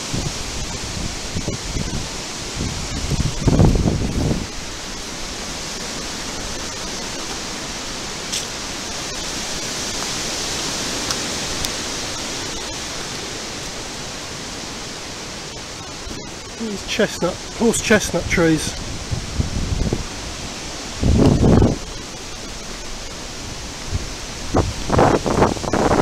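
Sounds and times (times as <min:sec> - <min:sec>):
wind rushing through trees: 0:00.0 - 0:26.0
microphone handling noise: 0:21.0 - 0:22.0.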